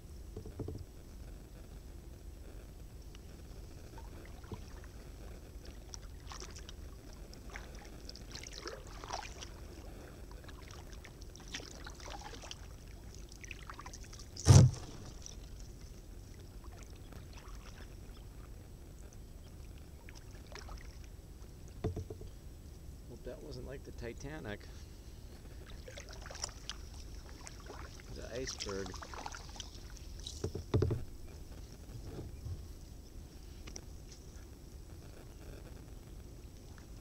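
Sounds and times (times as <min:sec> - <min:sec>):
steady low rumble: 0:00.0 - 0:12.0, 0:31.0 - 0:37.0
boat knocking on ice: 0:21.8 - 0:22.3, 0:30.4 - 0:31.1.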